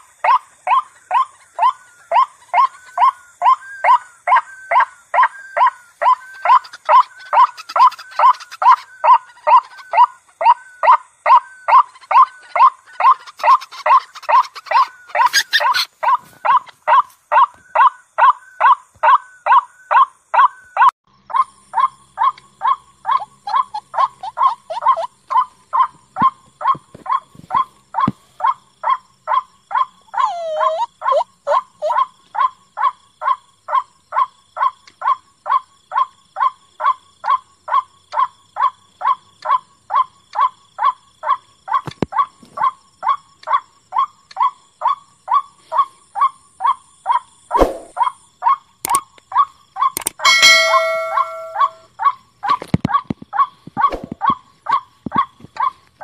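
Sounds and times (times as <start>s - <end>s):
drawn-out bird call: 0.0s - 32.6s, 48.0s - 52.2s
waterhen kwak calls: 0.2s - 16.7s, 49.8s - 51.9s.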